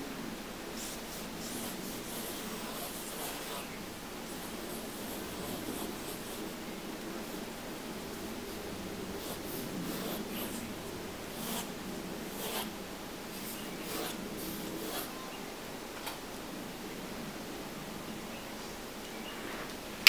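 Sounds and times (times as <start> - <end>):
low background hum: 0.0 - 20.0
pen nib scratching paper: 0.8 - 3.7, 4.4 - 6.4, 9.2 - 10.6, 11.4 - 11.7, 12.3 - 12.7, 13.8 - 15.2.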